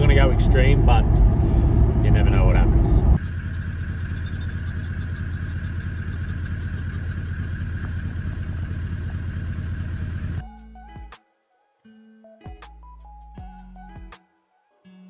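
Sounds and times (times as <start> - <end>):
car engine running: 0.0 - 10.4.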